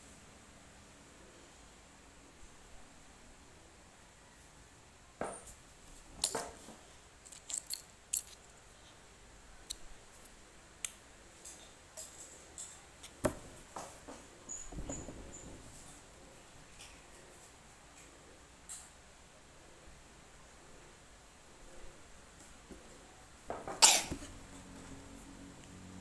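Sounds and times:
plastic snack wrapper crinkling: 7.3 - 8.5.

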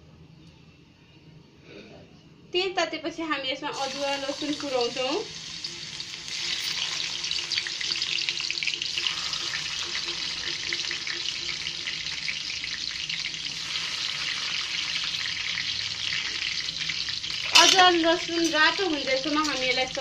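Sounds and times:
garlic sizzling in hot oil: 3.7 - 20.0.

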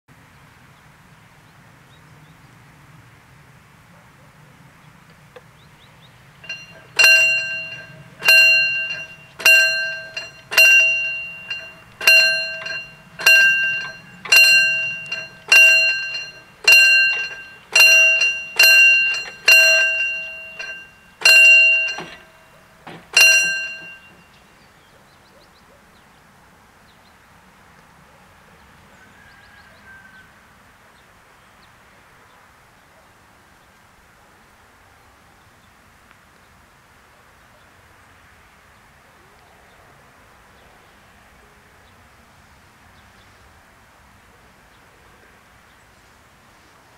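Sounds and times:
level crossing warning bell: 6.3 - 24.6.

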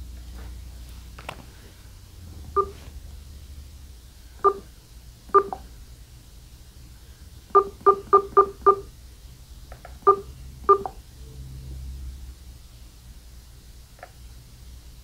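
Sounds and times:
phone key beeps: 4.4 - 4.6, 5.3 - 5.6, 10.1 - 11.0.

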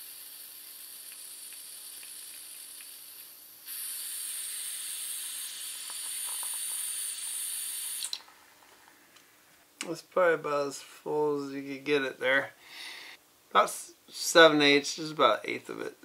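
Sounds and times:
butane gas hissing: 0.0 - 8.2.

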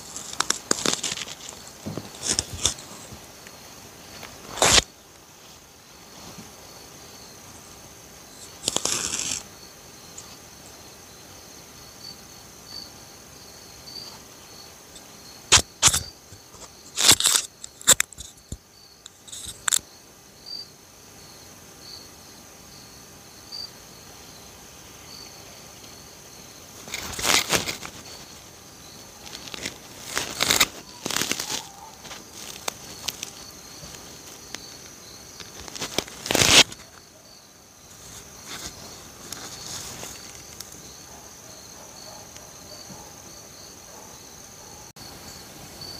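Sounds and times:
rustles and knocks: 0.0 - 3.2
insects chirping: 0.0 - 45.9.

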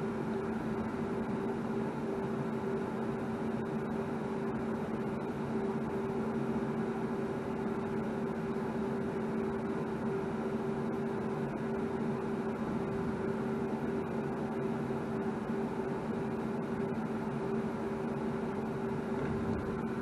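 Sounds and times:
machine hum: 11.6 - 20.0.

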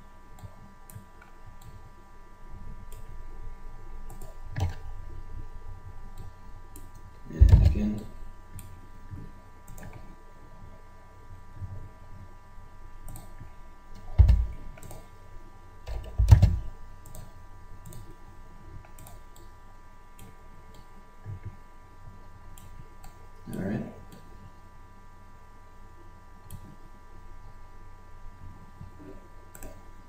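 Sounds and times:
computer mouse clicking: 0.3 - 1.8, 4.1 - 4.8, 9.7 - 10.1, 13.0 - 15.1, 15.9 - 18.2, 18.8 - 19.5, 29.5 - 29.8.

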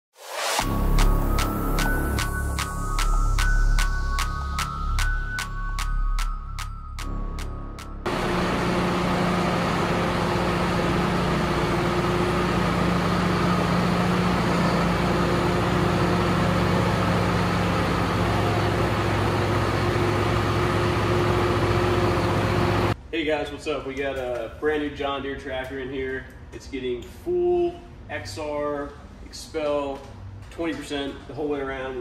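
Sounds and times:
electronic jingle: 0.5 - 10.5
tractor engine idling: 8.1 - 23.0.

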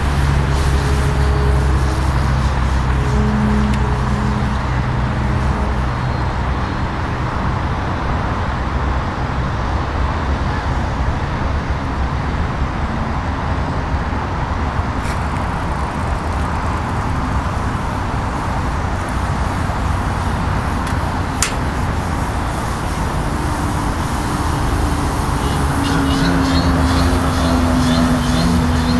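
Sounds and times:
model plane engine droning: 0.0 - 7.6, 13.0 - 28.9.

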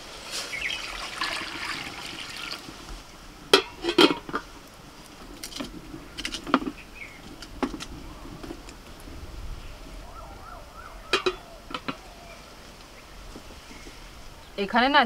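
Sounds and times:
water pouring into metal pot: 0.6 - 2.8
metal lid and pots clanking: 3.5 - 4.5, 11.1 - 12.0.

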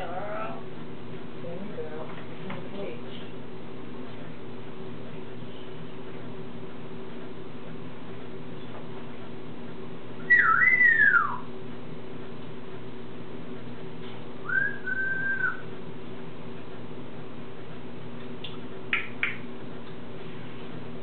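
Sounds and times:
steady low hum: 0.0 - 21.0
parrot whistling: 10.2 - 11.5, 14.4 - 15.7.

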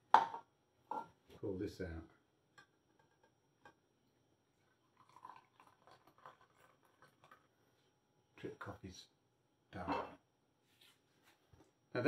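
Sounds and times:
coffee pouring into a glass: 4.5 - 7.6.

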